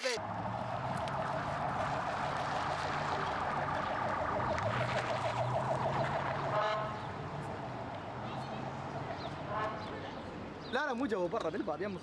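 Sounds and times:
low engine hum: 0.2 - 6.7
ambulance siren yelping: 0.2 - 6.8.

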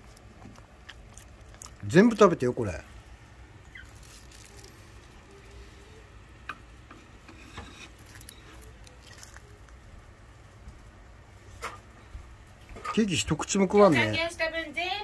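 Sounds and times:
dog licking and nibbling: 0.0 - 2.7, 8.0 - 9.8.

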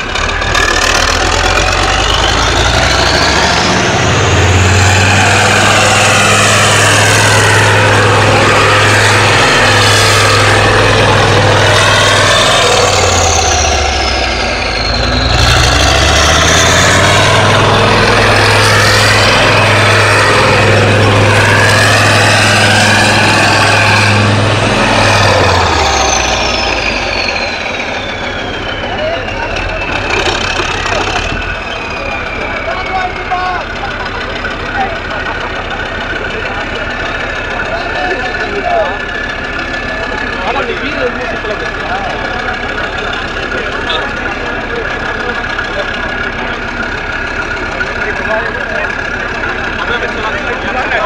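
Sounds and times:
high whines: 0.0 - 51.0
tank diesel engine droning: 0.0 - 51.0.

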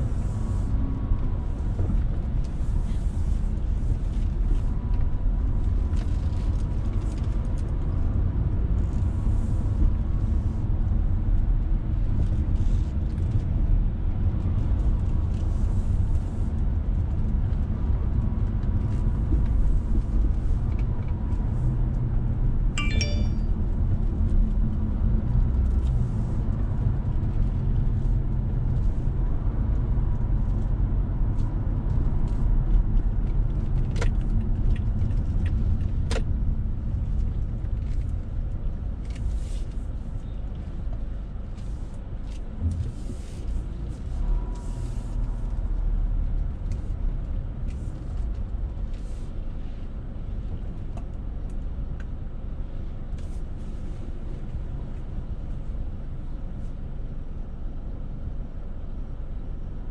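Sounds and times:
car engine and tyres rumbling: 0.0 - 59.9
jingle: 22.8 - 23.5.

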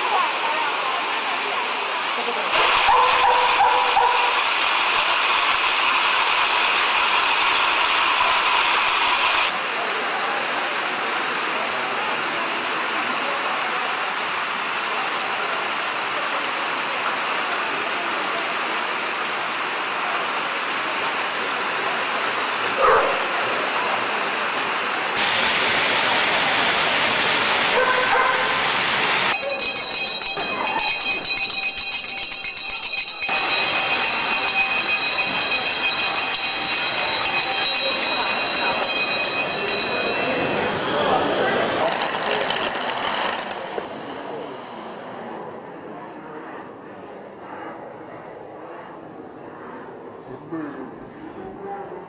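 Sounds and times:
crowd murmur: 0.0 - 52.0
dogs running on treadmills: 2.2 - 4.4, 27.7 - 28.6.

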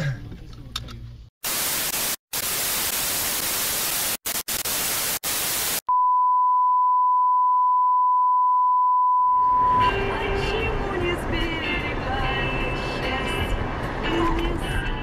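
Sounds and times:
television static hiss: 1.4 - 5.8.

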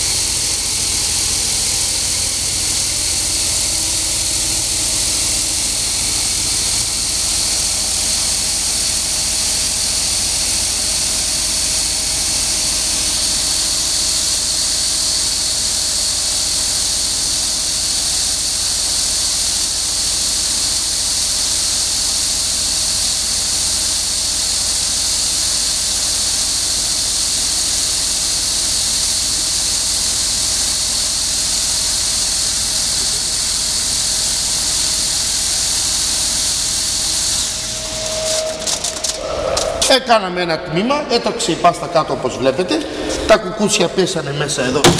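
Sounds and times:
machine motor hum: 0.0 - 17.0, 32.7 - 40.0, 44.5 - 44.9.

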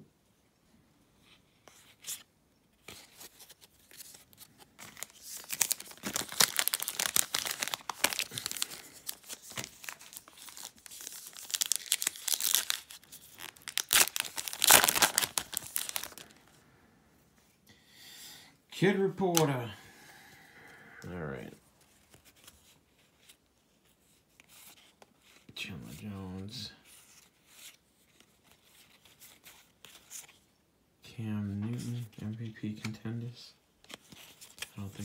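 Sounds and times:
foil wrapper crinkling and tearing: 3.6 - 16.4.

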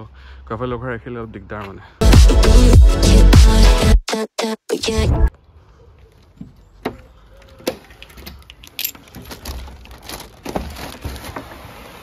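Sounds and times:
keys jangling: 8.0 - 9.9.

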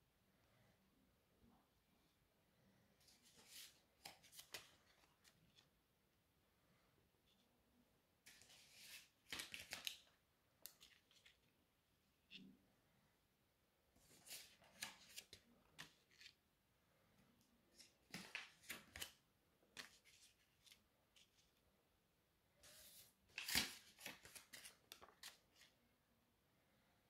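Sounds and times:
paper banknotes rustling: 3.1 - 5.6, 8.3 - 11.5, 14.0 - 16.4, 17.8 - 19.2, 19.8 - 21.6, 22.7 - 25.7.

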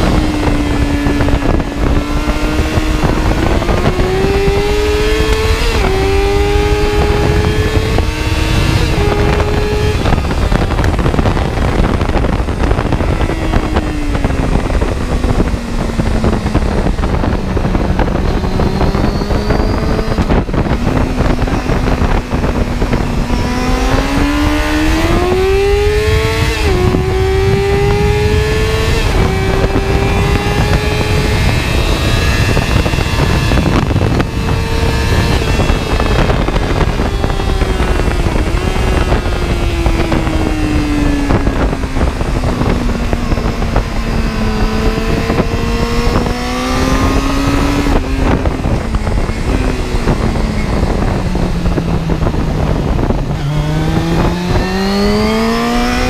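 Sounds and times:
heavy low rumble: 0.0 - 56.0
vehicle engine running: 0.0 - 56.0.

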